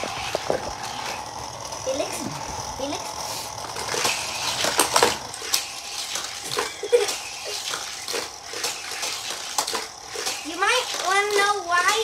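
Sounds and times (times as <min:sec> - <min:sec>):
toy car clattering on plastic track: 0:03.6 - 0:12.0.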